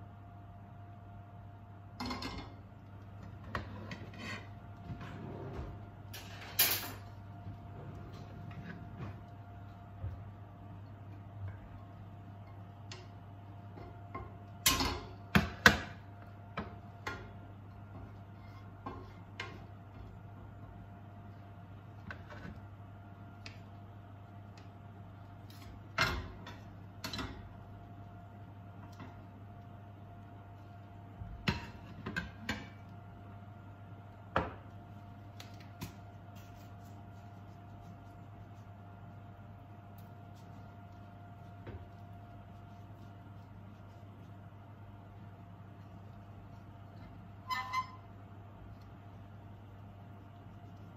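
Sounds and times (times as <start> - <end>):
faint steady hum: 0.0 - 50.9
wooden spoon scraping a pan: 3.4 - 6.5, 17.9 - 19.8.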